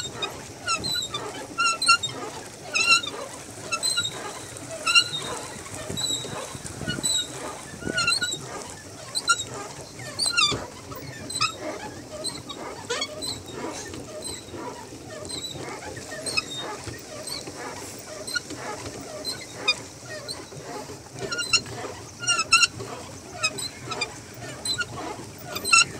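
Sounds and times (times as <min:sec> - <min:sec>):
pedal mechanism squeaking: 0:00.0 - 0:25.9.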